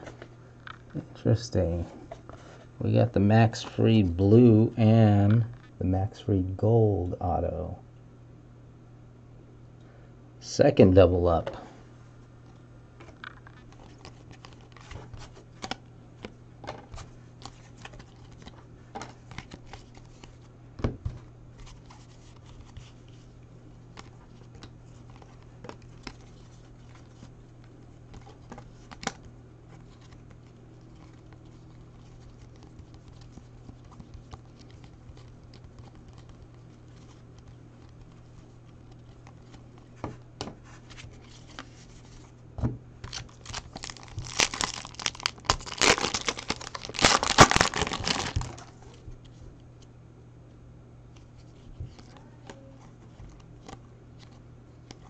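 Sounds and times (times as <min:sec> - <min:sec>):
steady low hum: 0:00.0 - 0:55.0
cards being shuffled by hand: 0:13.0 - 0:42.4, 0:43.0 - 0:49.4, 0:51.1 - 0:55.0
foil pack crinkling: 0:43.1 - 0:48.9.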